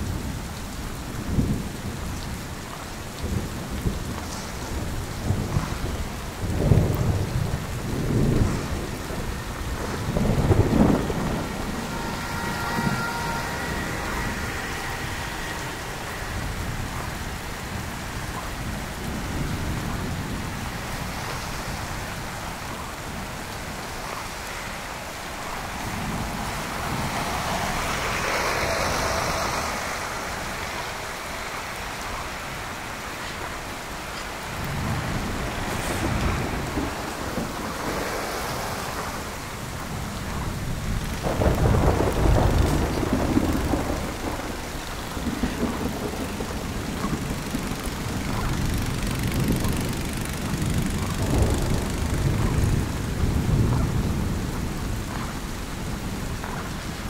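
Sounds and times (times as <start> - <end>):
snowstorm wet hiss: 0.0 - 57.0
wind buffeting microphone: 0.0 - 57.0
tyres passing on slush: 8.7 - 53.3.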